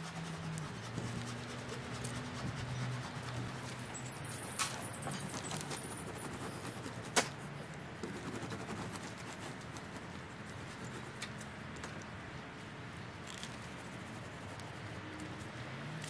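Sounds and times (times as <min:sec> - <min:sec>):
palette knife scraping canvas: 0:00.0 - 0:07.4, 0:08.0 - 0:10.0.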